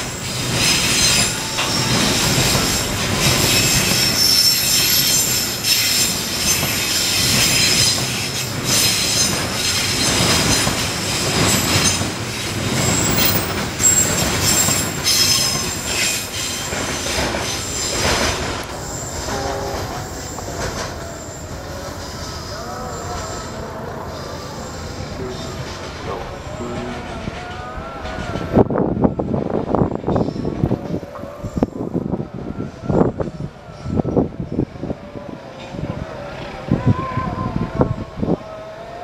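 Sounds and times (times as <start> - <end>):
wheels clacking over rail joints: 0.0 - 22.2
train wheels squealing on rails: 0.0 - 39.0.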